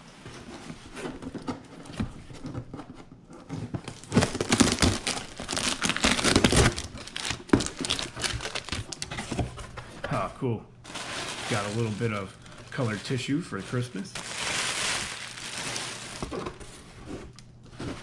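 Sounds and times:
cardboard flaps rustling: 0.3s - 10.3s, 10.9s - 18.0s
plastic bag crinkling: 3.9s - 9.4s, 10.8s - 16.8s.

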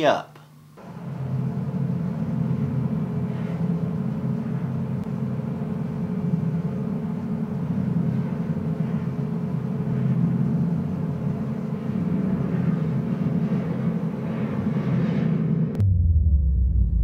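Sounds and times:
faint hum: 0.0s - 17.0s
low rumbling drone: 0.8s - 17.0s.

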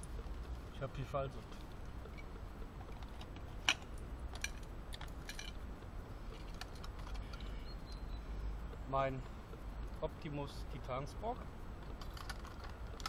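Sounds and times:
metal camping gear clinking: 1.3s - 5.6s, 6.3s - 7.6s, 11.8s - 13.0s.

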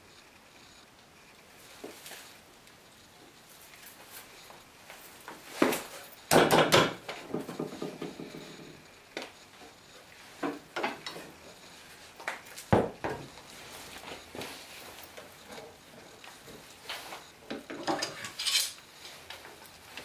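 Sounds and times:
wooden knocks: 6.3s - 8.5s, 12.7s - 13.3s.

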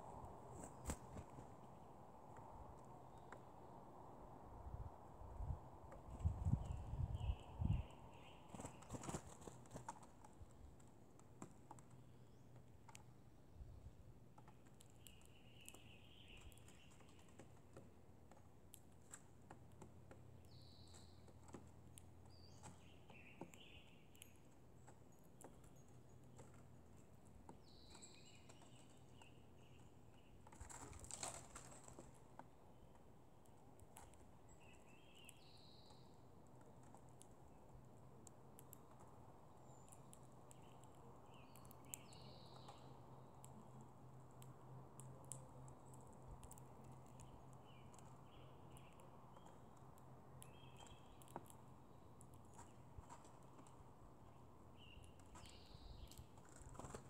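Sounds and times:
birds pecking on wood: 5.7s - 57.0s
rustle: 6.0s - 10.4s, 30.5s - 32.3s, 54.8s - 57.0s.

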